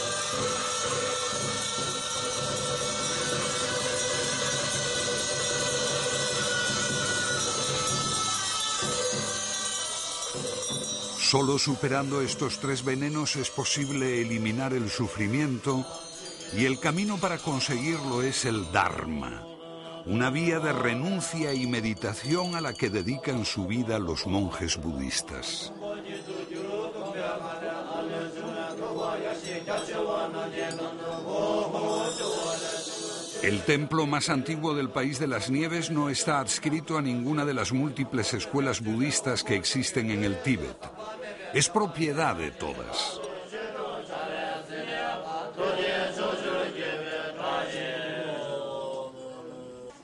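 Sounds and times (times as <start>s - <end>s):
monks chanting: 0.0s - 8.2s, 25.0s - 50.0s
monks chanting in low drone: 0.0s - 9.4s, 43.2s - 50.0s.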